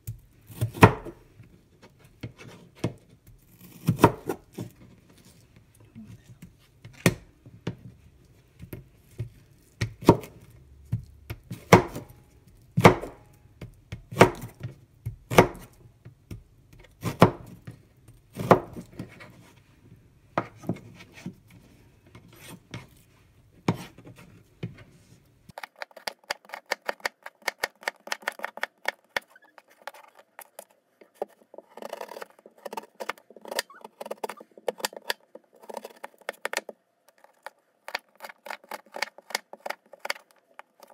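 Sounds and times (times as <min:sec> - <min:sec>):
knife cutting on plastic board: 0:23.7 - 0:24.3, 0:25.5 - 0:40.9.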